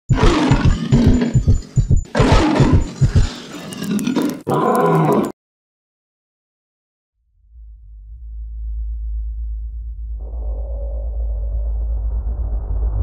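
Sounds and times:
lion-like roaring growls: 0.1s - 1.4s, 2.1s - 5.3s.

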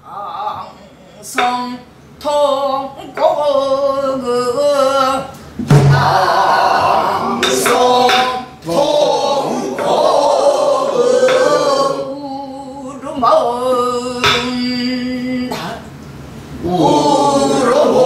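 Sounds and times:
stick striking barrel drum: 5.6s - 8.8s, 11.1s - 11.8s, 14.2s - 14.8s.

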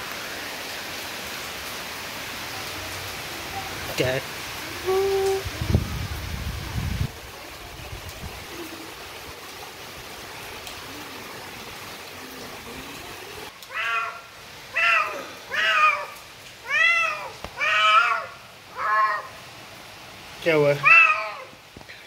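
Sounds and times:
cat meowing: 13.7s - 19.3s, 20.8s - 21.5s.

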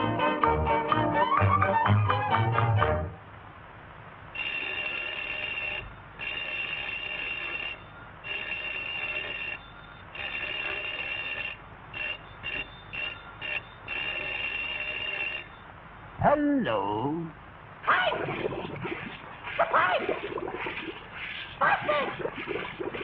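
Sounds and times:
cartoon telephone bell ringing: 4.4s - 15.6s.

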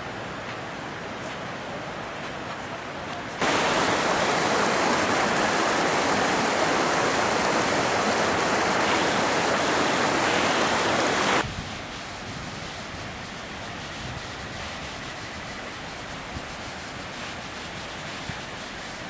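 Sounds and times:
river water rushing over rocks: 3.4s - 11.4s.

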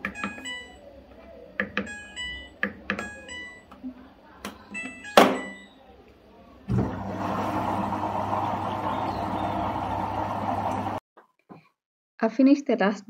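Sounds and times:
water rushing into drum: 6.7s - 11.0s.

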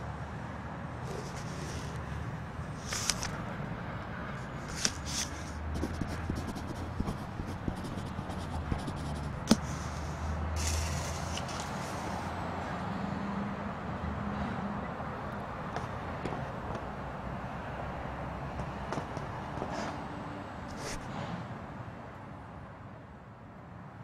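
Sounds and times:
pen writing on paper: 1.1s - 2.0s, 4.5s - 12.3s, 20.7s - 21.0s
banknote and wallet rustling: 1.1s - 2.1s, 2.8s - 3.4s, 4.4s - 12.3s, 20.7s - 21.0s
steady low hum: 4.3s - 12.4s.

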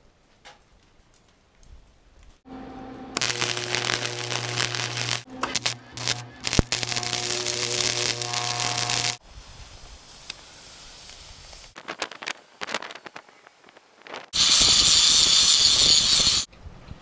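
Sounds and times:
steady low hum: 2.5s - 9.2s
welder arc crackling: 2.5s - 9.2s, 11.0s - 16.5s.

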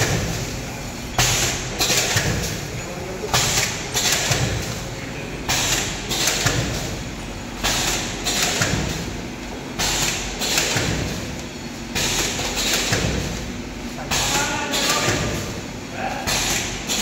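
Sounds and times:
packaging machine hissing rush: 0.0s - 17.0s.

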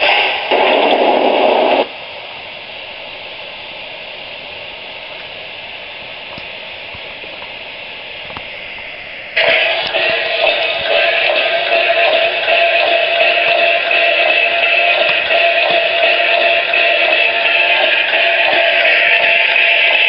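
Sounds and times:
burst of steam noise: 0.0s - 1.9s, 8.5s - 20.0s
steady hiss of steam: 0.0s - 20.0s.

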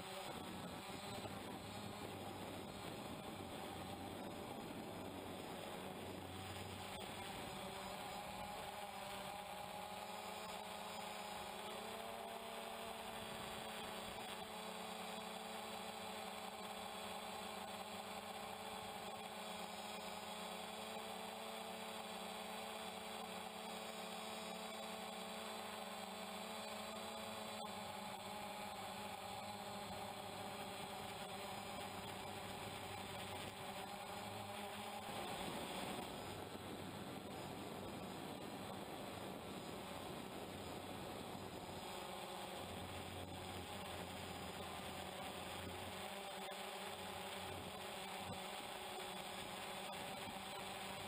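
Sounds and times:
drone propellers humming: 0.0s - 51.0s.

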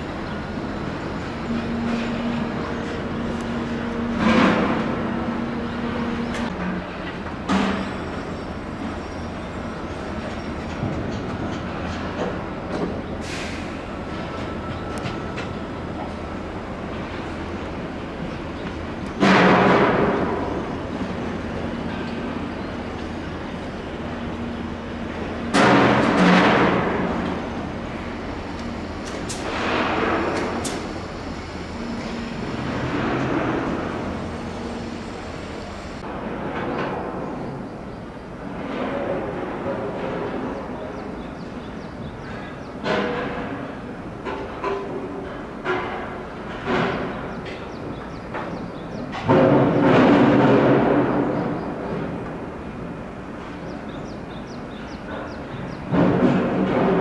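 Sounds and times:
machinery low rumble: 0.0s - 42.7s
metal knocks and clanks: 42.8s - 47.6s.

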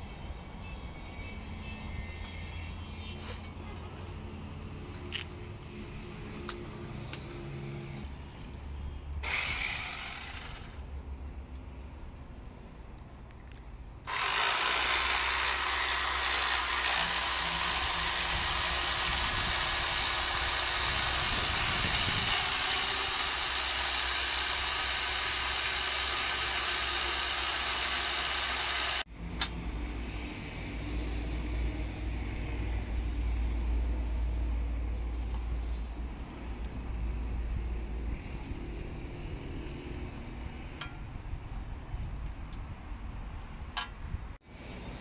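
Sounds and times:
electric drill boring into wall: 9.2s - 10.8s, 14.1s - 29.1s.

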